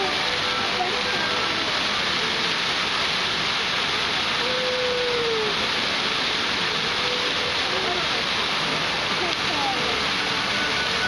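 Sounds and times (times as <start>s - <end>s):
fountain jets splashing into pond: 0.0s - 11.0s.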